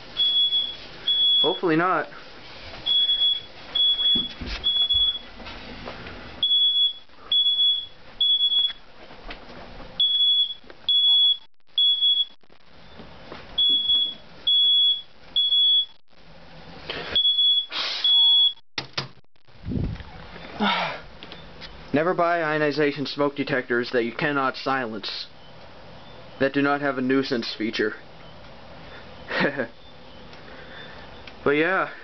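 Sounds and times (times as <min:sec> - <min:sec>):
smoke alarm beeping: 0:00.0 - 0:01.9, 0:02.8 - 0:05.3, 0:06.4 - 0:08.9, 0:10.0 - 0:13.0, 0:13.6 - 0:16.0, 0:17.1 - 0:18.6.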